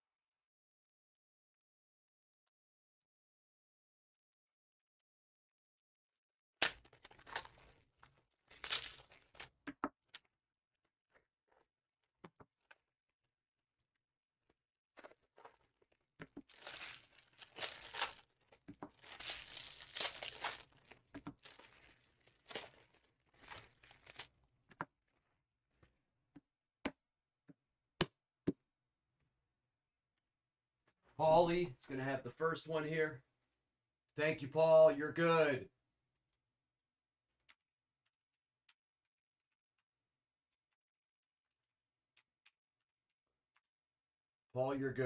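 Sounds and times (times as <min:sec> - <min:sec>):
plastic packaging tearing and crinkling: 0:06.6 - 0:09.5, 0:16.4 - 0:24.3.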